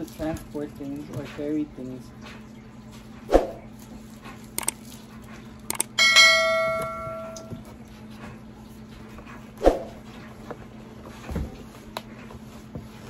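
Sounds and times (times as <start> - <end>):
quick clicks: 4.6 - 4.8, 5.7 - 6.0
bell ding: 6.0 - 7.5.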